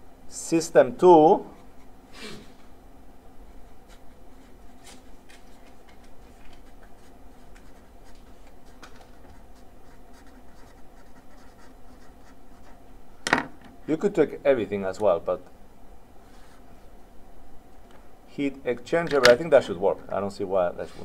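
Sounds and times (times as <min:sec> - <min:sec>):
faint steady hum: 0:00.0 - 0:21.0
marker pen scratching on paper: 0:03.6 - 0:12.8.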